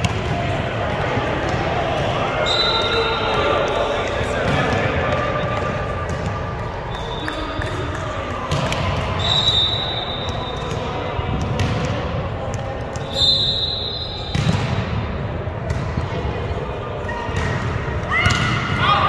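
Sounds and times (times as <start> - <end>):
murmur of voices: 0.0 - 19.0
volleyball strikes and thuds: 10.2 - 13.2, 14.2 - 16.2.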